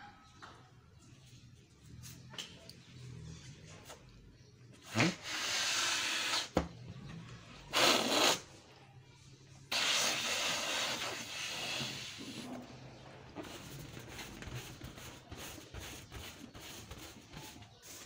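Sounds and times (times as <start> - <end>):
balloon squeak: 4.8 - 6.6, 7.7 - 8.5, 9.7 - 12.4
balloon rubbing on carpet: 7.7 - 8.4.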